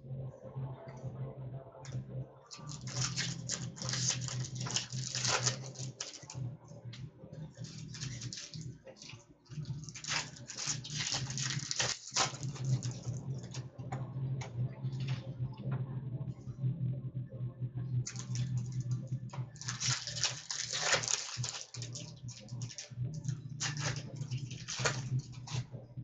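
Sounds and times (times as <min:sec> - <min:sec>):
low steady hum: 0:00.0 - 0:26.0
cards clicking: 0:02.5 - 0:06.4, 0:07.6 - 0:13.6, 0:18.1 - 0:25.6
wrappers crinkling: 0:02.5 - 0:06.4, 0:07.6 - 0:13.6, 0:18.0 - 0:18.9, 0:19.5 - 0:25.6.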